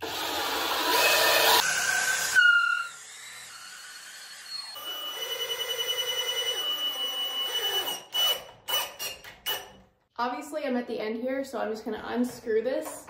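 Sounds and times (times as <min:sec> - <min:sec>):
cordless drill spinning: 0:00.0 - 0:09.8.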